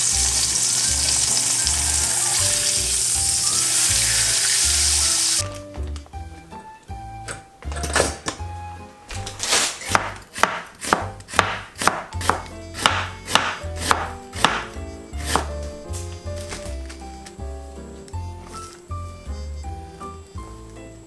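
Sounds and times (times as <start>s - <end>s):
knife chopping on cutting board: 9.4s - 15.8s.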